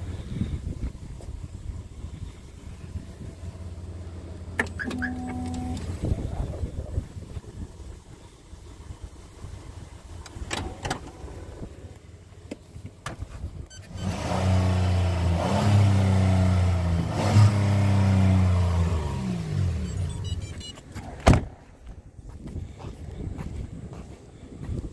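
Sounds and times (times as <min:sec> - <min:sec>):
car engine starting and idling: 0:00.0 - 0:21.7
car door shutting: 0:04.5 - 0:06.1, 0:19.9 - 0:21.6.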